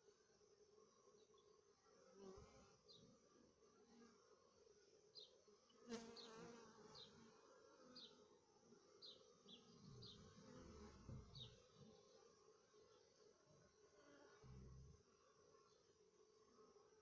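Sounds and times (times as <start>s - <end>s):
honeybees buzzing: 5.9s - 8.3s, 8.9s - 12.3s.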